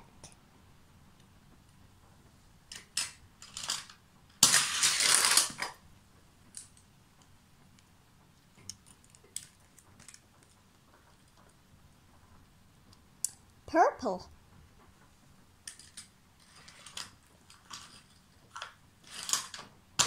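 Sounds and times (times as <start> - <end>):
toy cars clicking on plastic: 2.7 - 5.8, 8.6 - 11.6, 15.6 - 20.0.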